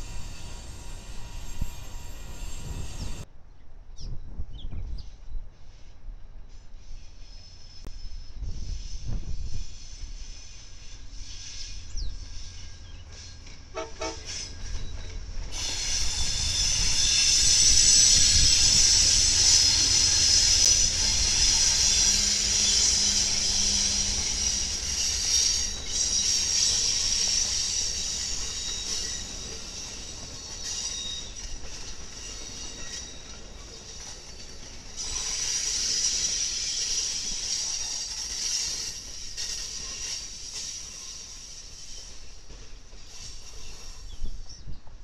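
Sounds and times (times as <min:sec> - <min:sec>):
diesel locomotive passing: 0:00.0 - 0:03.3, 0:05.6 - 0:45.0
train wheels on rails: 0:00.0 - 0:03.3, 0:05.0 - 0:45.0
train horn: 0:13.7 - 0:14.5, 0:18.3 - 0:25.7.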